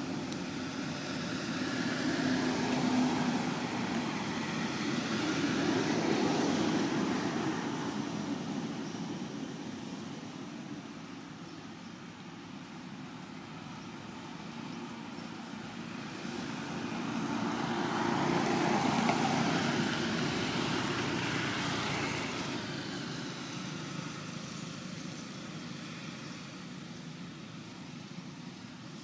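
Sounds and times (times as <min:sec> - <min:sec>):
vehicle passing: 0:00.0 - 0:10.5, 0:14.2 - 0:24.2.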